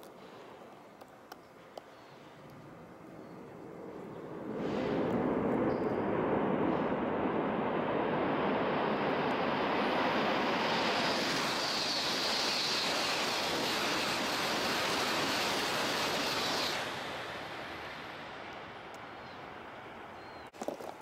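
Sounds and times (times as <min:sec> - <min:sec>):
train passing at high speed: 0:02.4 - 0:20.5
sharp high hiss: 0:09.9 - 0:18.6.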